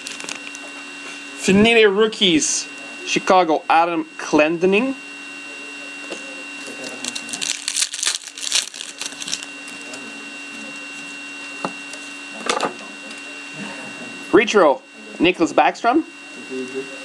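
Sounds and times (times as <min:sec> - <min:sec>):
foil wrapper crackling: 0:00.0 - 0:00.7, 0:06.6 - 0:10.0
steady electrical hum: 0:00.0 - 0:17.0.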